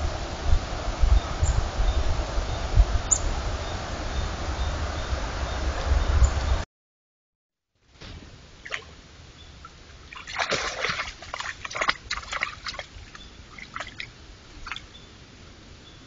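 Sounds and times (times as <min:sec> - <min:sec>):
deer splashing in shallow water: 0:08.6 - 0:15.0.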